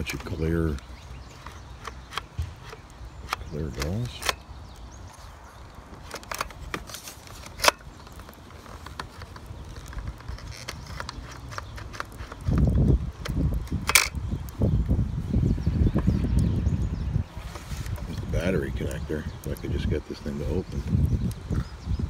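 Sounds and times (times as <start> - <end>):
low rumbling handling noise: 0.0 - 22.0
plastic toy clicks and snaps: 8.8 - 14.2.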